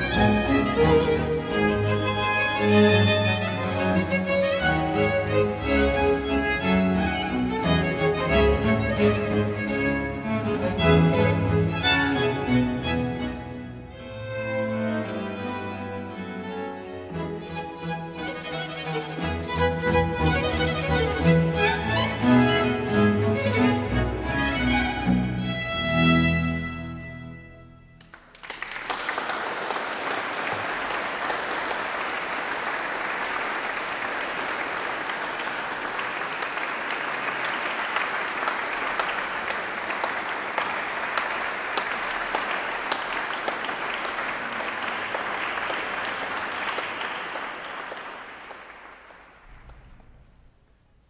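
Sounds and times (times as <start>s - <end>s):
audience applauding: 28.0s - 50.2s.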